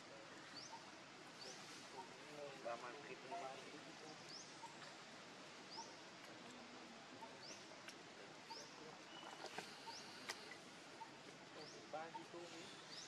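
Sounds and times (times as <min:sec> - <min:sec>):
low hiss: 0:00.0 - 0:13.0.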